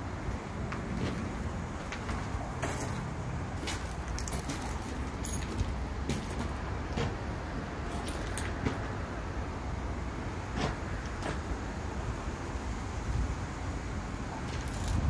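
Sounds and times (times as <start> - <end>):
footsteps crunching on gravel: 0.9 - 7.2.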